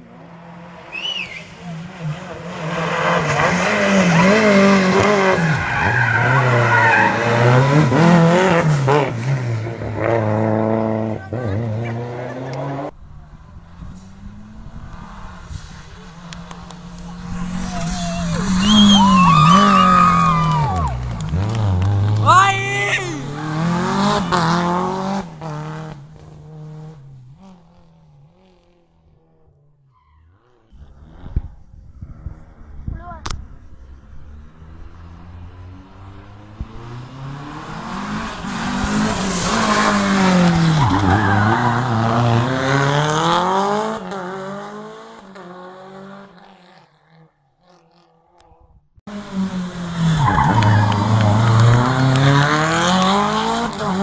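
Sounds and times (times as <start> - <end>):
rally car engine revving: 0.0 - 54.0.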